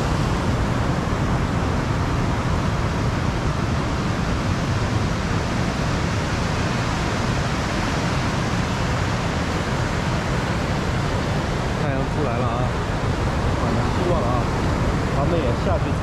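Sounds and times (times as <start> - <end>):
ocean surf breaking: 0.0 - 16.0.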